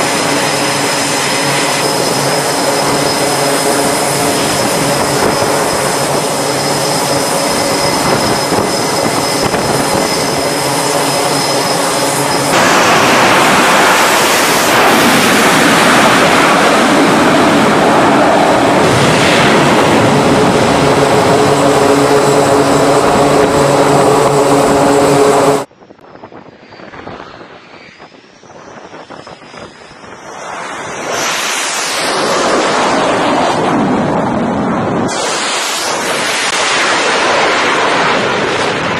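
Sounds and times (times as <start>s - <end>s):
jet engines roaring: 0.0s - 38.9s
wind noise: 0.0s - 38.9s.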